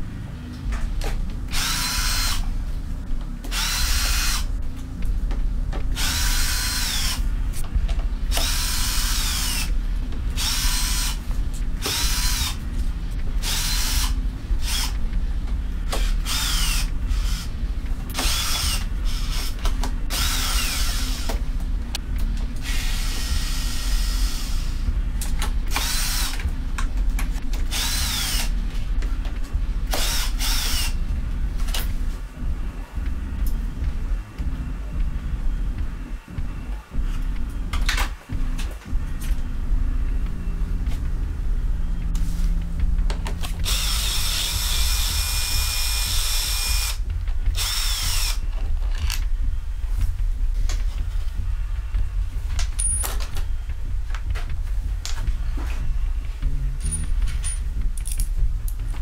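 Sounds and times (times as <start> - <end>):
cordless drill whining: 1.5 - 2.4, 3.5 - 4.5, 6.0 - 7.2, 16.0 - 17.5, 18.2 - 21.3, 47.6 - 48.4.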